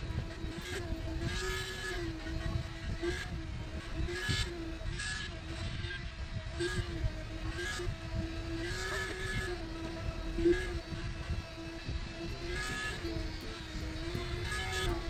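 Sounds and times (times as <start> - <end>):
concrete pump engine drone: 0.0 - 15.0.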